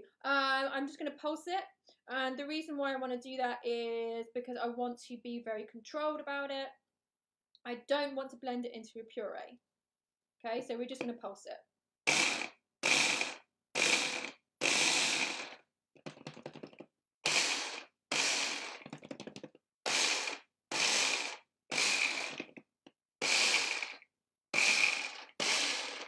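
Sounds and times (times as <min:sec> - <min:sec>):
blender motor whine in bursts: 0:12.1 - 0:15.6, 0:17.2 - 0:18.9, 0:19.8 - 0:22.5, 0:23.2 - 0:26.0.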